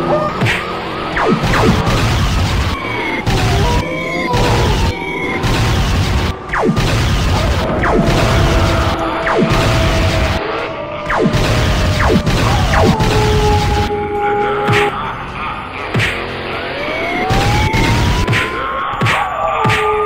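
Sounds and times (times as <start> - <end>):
background music: 0.0 - 20.0
cartoon explosion and crash: 1.2 - 13.9.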